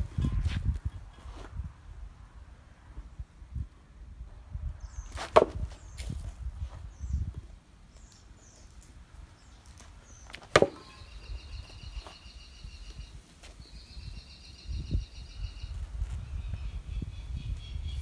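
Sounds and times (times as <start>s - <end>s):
sword striking hung tyres: 5.2s - 5.8s, 10.4s - 11.0s.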